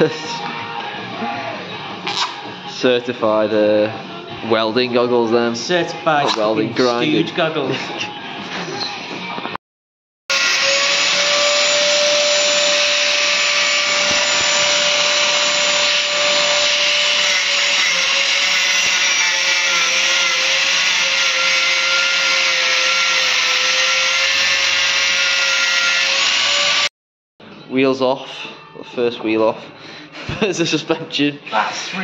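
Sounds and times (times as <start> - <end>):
angle grinder grinding steel: 10.3 - 26.9.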